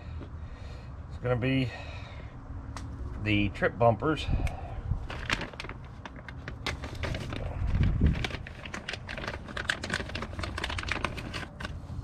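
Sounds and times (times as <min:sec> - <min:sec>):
plastic bag crinkling: 0:05.0 - 0:11.8
hardware clicking in bag: 0:08.1 - 0:11.8.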